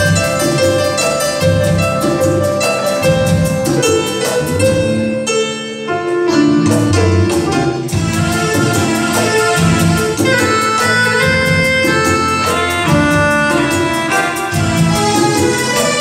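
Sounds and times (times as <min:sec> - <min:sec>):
brass-like melody: 0:00.0 - 0:16.0
tabla and dholak beat: 0:07.3 - 0:16.0.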